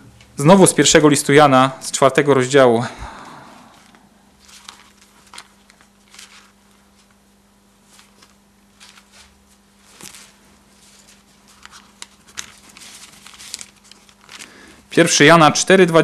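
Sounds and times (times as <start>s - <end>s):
steady low hum: 0.0s - 16.0s
pages rustling and flicking: 3.8s - 7.2s, 7.8s - 14.7s.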